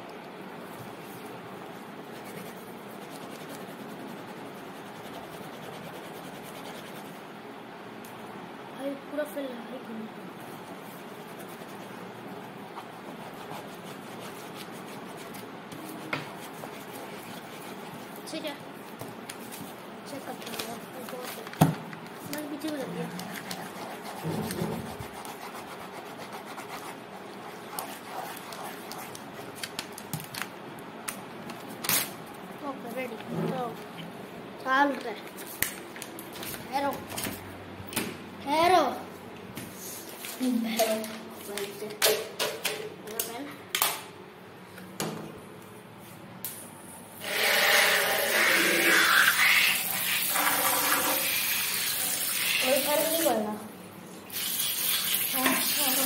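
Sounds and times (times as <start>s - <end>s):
scratchy rubbing on paper: 2.0s - 7.2s, 10.3s - 21.6s, 22.2s - 29.7s
pen scratching on paper: 23.1s - 29.5s.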